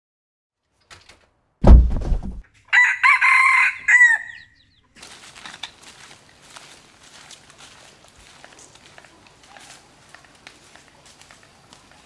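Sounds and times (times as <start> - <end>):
deep thump: 1.6 - 2.4
rooster crowing: 2.7 - 4.5
footsteps on dry leaves: 5.0 - 12.0.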